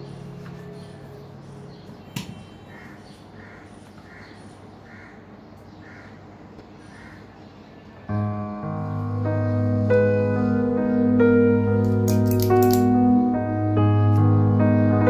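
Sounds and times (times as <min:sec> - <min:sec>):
background music: 0:00.0 - 0:02.8, 0:08.1 - 0:15.0
crow cawing: 0:02.6 - 0:07.6.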